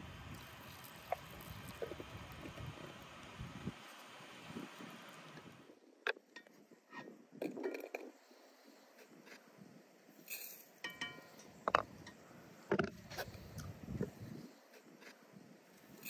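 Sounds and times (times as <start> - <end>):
glassy ring: 10.3 - 11.4
glass teapot knocks and clinks: 10.8 - 11.3.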